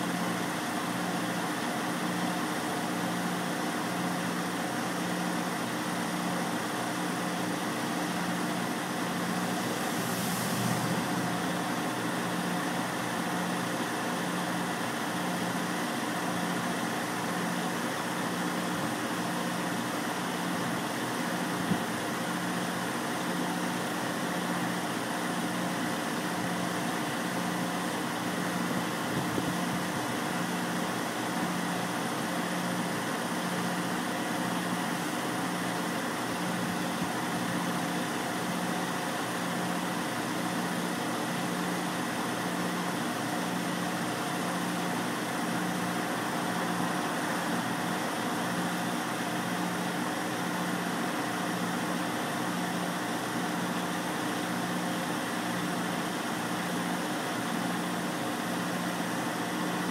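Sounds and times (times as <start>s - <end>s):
truck engine idling: 7.4s - 15.4s.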